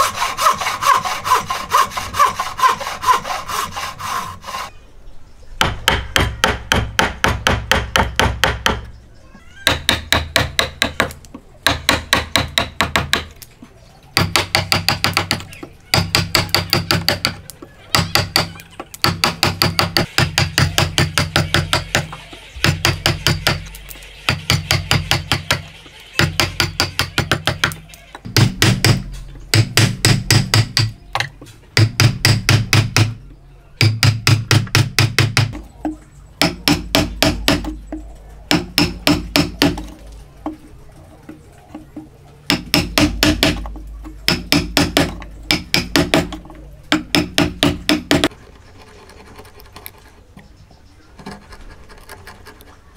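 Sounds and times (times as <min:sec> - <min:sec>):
chisel knocking into wood: 0:38.5 - 0:39.9, 0:42.5 - 0:48.3.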